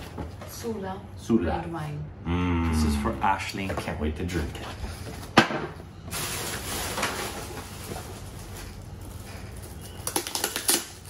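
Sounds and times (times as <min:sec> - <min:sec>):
packaging and gift wrap rustling: 0:06.0 - 0:11.0.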